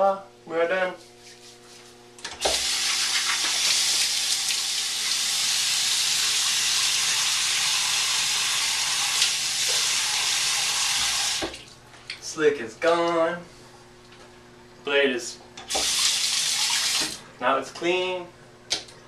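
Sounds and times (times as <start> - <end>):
faucet running: 2.4 - 11.7, 15.6 - 17.2.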